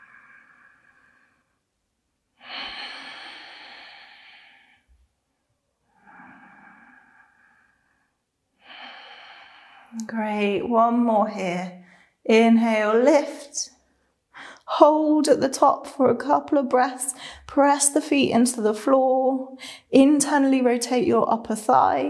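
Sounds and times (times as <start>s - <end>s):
woman breathing slowly: 0.0s - 1.8s, 2.4s - 5.2s, 5.8s - 10.0s, 11.8s - 12.2s, 13.9s - 14.7s, 17.1s - 17.5s, 19.5s - 19.9s.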